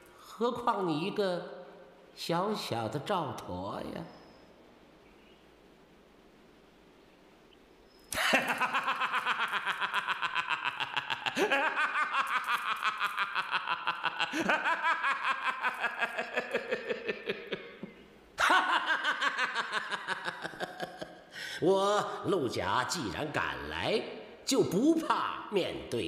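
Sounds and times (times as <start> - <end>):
man laughing loudly: 8.1 - 21.3.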